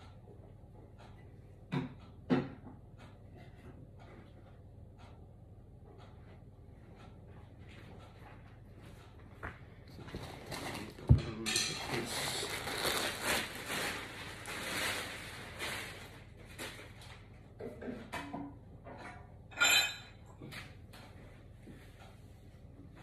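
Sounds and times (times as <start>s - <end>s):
rustling and clattering: 7.4s - 19.9s.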